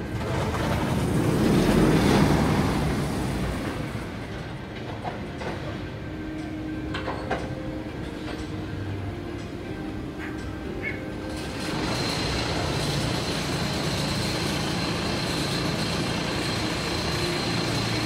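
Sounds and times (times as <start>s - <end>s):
ride clicking and clanking: 0.0s - 18.0s
roller coaster rumbling on track: 0.0s - 18.0s.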